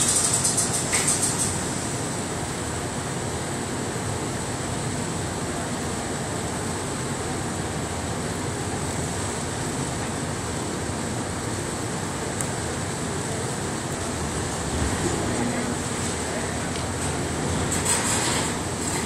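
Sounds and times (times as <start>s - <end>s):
heavy machinery running: 0.0s - 19.0s.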